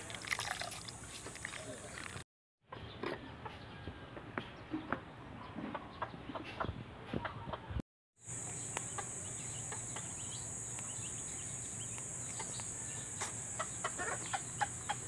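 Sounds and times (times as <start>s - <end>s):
bird calls and clucks: 2.7s - 7.8s, 8.4s - 15.0s.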